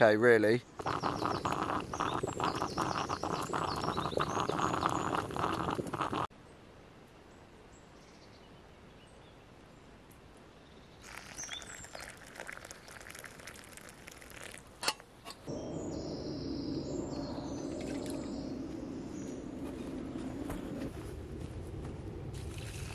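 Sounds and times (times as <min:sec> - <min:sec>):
birds chirping: 0:00.0 - 0:06.3, 0:07.7 - 0:13.2, 0:15.1 - 0:21.1
coffee pouring into a cup: 0:00.8 - 0:06.3, 0:11.0 - 0:14.7
steady rushing noise: 0:15.5 - 0:22.6.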